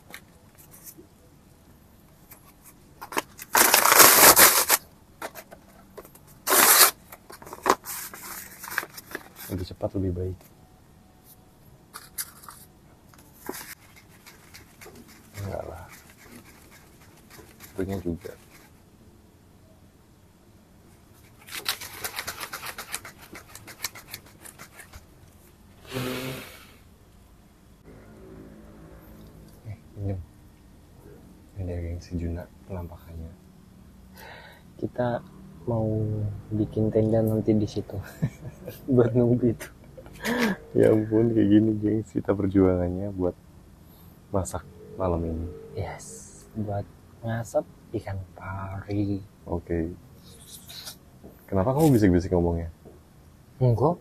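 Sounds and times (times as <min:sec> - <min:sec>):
cardboard and paper tearing: 0:03.1 - 0:04.8, 0:06.4 - 0:09.5, 0:21.3 - 0:25.0
breath blown onto embers: 0:25.8 - 0:26.8.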